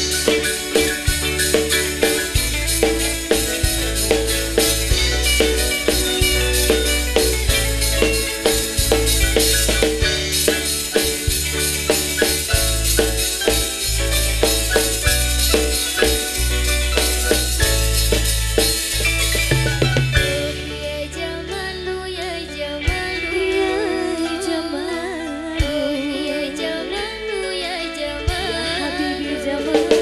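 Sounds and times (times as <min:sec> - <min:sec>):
drum and percussion beat: 0:00.0 - 0:20.7
electronic keyboard: 0:00.0 - 0:30.0.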